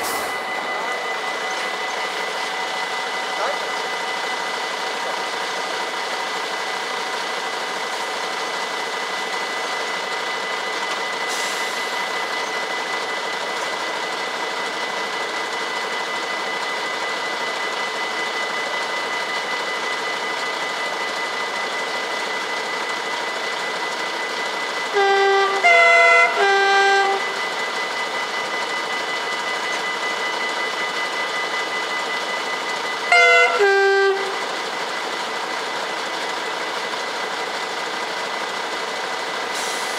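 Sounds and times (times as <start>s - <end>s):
train horn: 24.9s - 27.6s, 33.1s - 34.6s.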